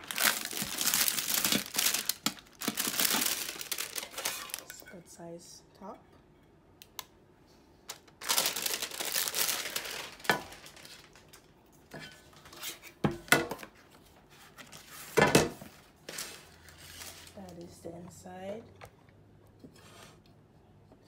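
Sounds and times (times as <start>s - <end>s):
packing wrap crinkling and tearing: 0.0s - 4.8s, 7.9s - 11.5s, 14.5s - 17.4s.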